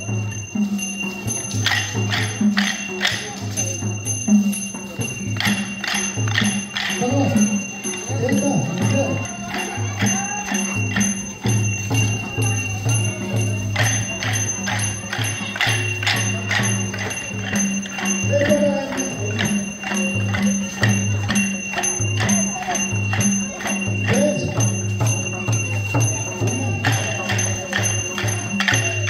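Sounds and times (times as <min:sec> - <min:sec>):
voices calling out: 0:00.0 - 0:29.0
wooden sticks clacking together: 0:01.5 - 0:03.8, 0:05.4 - 0:07.1.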